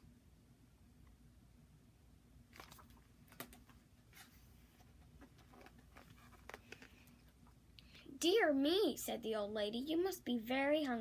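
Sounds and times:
faint paper rustles: 2.6s - 7.4s
light clicks of book handling: 2.6s - 7.4s.

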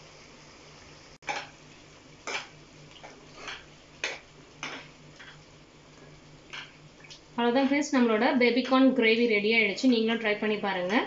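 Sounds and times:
spoon scraping a pan: 1.2s - 1.6s, 2.2s - 5.5s.

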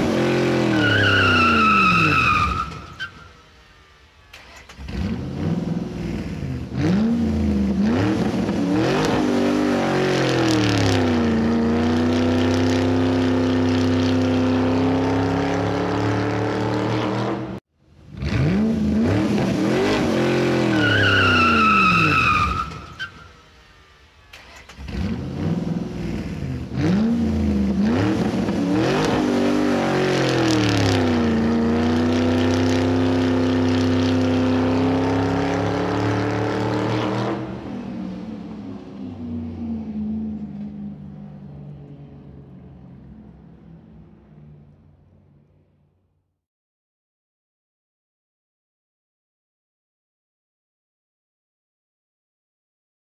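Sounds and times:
car engine revving: 0.0s - 3.0s, 4.2s - 23.2s, 24.3s - 42.0s
tyre squeal: 0.5s - 3.4s, 20.6s - 23.4s.

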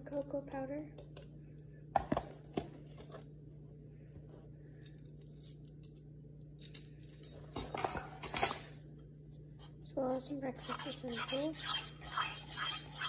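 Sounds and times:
metal measuring spoons clinking: 6.6s - 8.7s.

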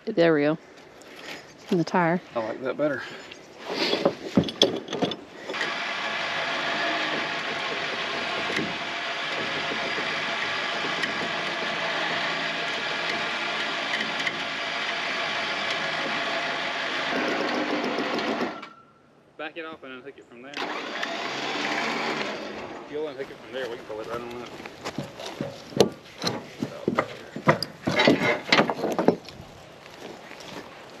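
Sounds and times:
knocks and clanks: 3.8s - 18.7s, 23.7s - 29.4s
electric winch motor whining: 5.3s - 18.9s, 20.5s - 22.9s.

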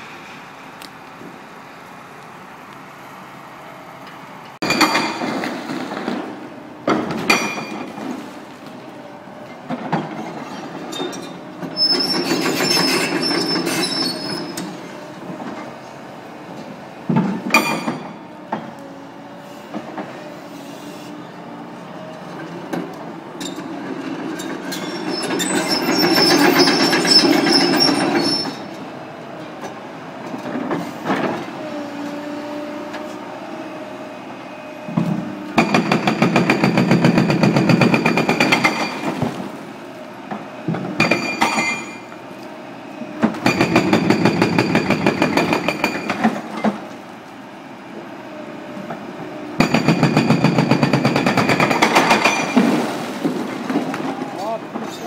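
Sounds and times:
excavator engine and hydraulics: 0.0s - 55.0s
hydraulic breaker hammering concrete: 35.6s - 39.2s, 43.4s - 46.4s, 49.6s - 52.8s.

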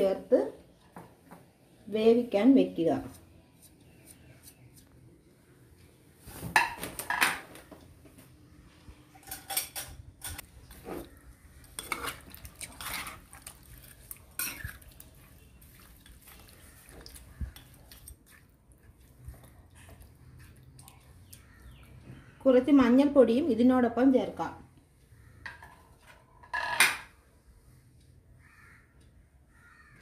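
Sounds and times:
metal spoon scraping frying pan: 11.7s - 13.5s, 14.3s - 14.9s.

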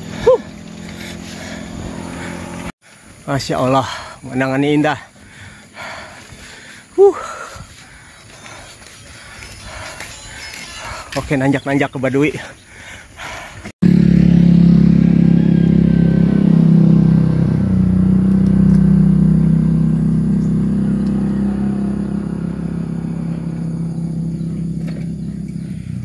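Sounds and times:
vehicle engine running: 0.0s - 2.8s, 13.8s - 26.0s.

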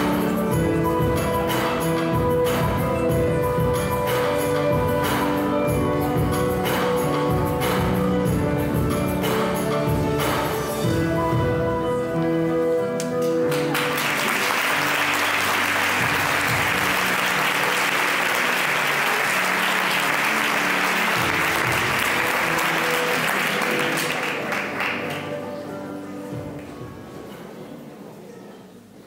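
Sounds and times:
instrumental music with held notes: 0.0s - 27.7s
audience applause: 13.5s - 25.5s.

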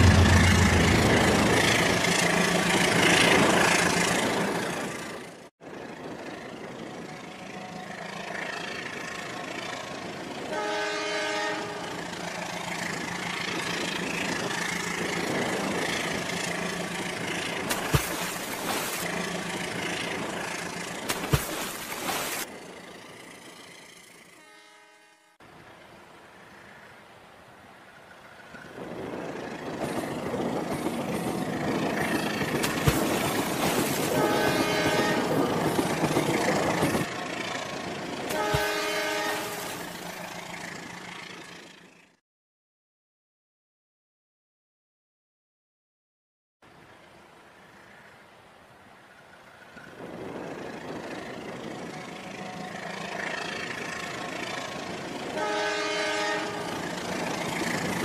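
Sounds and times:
steady hum: 0.0s - 1.8s
toy train horn: 10.5s - 12.0s, 24.3s - 25.4s, 34.1s - 35.4s, 38.3s - 39.9s, 55.4s - 56.8s.

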